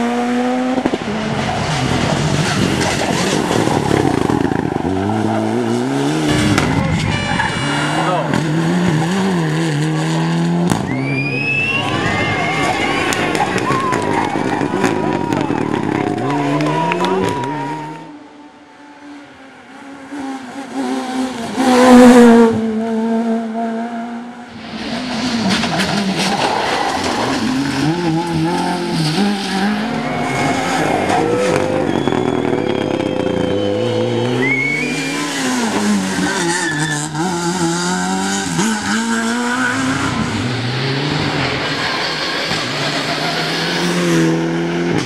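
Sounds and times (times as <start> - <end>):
rally car engines revving: 0.0 - 45.0
tyre squeal: 25.6 - 37.3.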